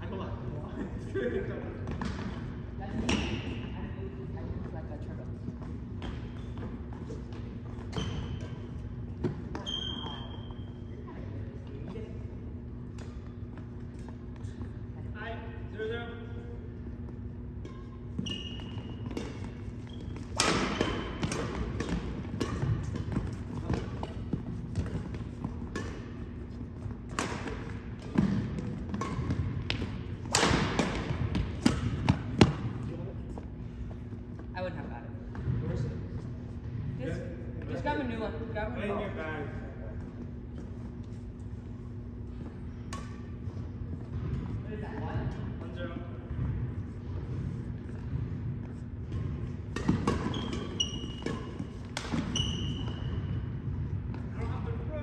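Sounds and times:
sneakers squeaking on court floor: 1.8 - 15.6, 16.2 - 36.8, 39.9 - 55.0
racket striking shuttlecock: 19.0 - 32.8, 42.9 - 43.3, 49.7 - 53.1.

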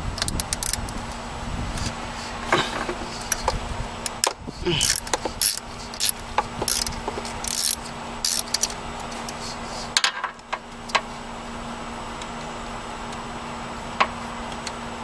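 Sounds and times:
ratchet wrench clicking: 0.2 - 1.0, 3.2 - 8.8.

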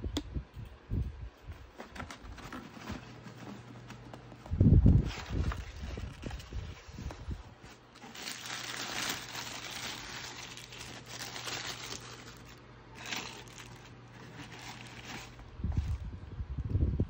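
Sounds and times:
tissue paper rustling: 4.9 - 16.0.

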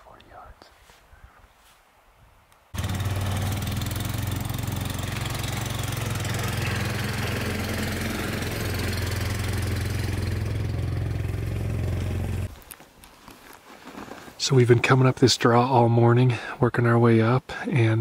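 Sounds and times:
atv engine running: 2.8 - 12.6.

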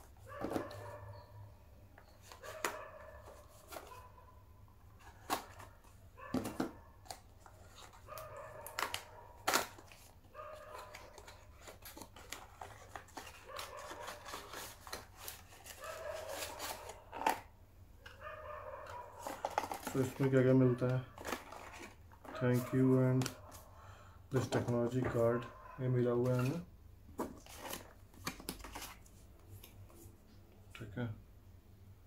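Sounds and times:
packaging clicks and rustles: 5.0 - 18.2, 18.8 - 23.6, 27.2 - 29.8
packaging snapping: 6.4 - 17.5, 19.2 - 20.4, 21.2 - 22.6, 27.2 - 29.0.

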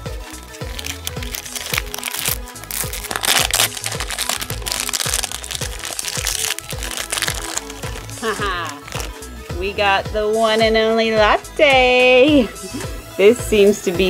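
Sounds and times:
background music with a beat: 0.0 - 14.0
foil bag crinkling: 0.6 - 9.2.

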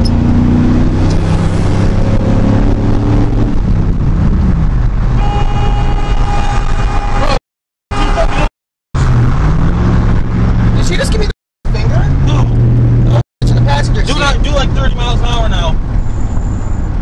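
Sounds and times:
vehicle engine and road noise: 0.0 - 17.0
car horn blast: 5.2 - 8.5.

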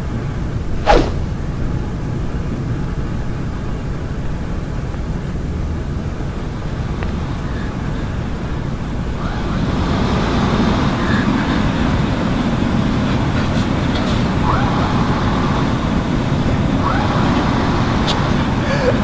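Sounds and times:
distant road traffic: 6.0 - 19.0.

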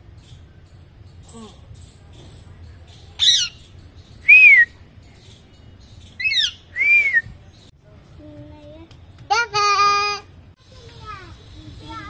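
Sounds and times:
parakeet squawking and whistling: 3.2 - 3.7, 6.2 - 7.2.

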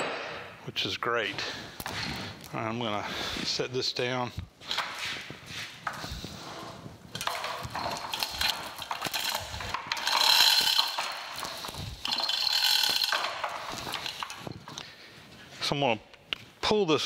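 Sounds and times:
hoist chain rattling: 7.1 - 14.5
hoist mechanism clicking: 7.2 - 14.4.

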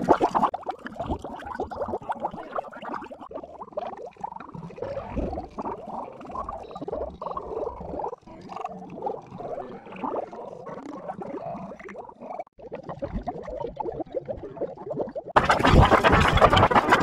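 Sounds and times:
distorted cartoon clicks and squeaks: 15.4 - 17.0.

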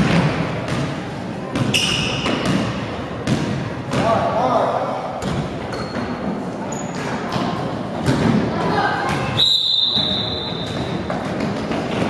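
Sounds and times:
voices in a hall: 0.0 - 12.0
shrill referee whistle: 9.4 - 10.8.

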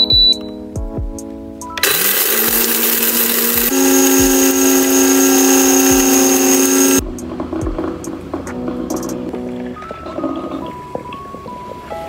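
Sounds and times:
background music with beat: 0.0 - 12.0
coffee grinder whirring: 1.8 - 7.0.

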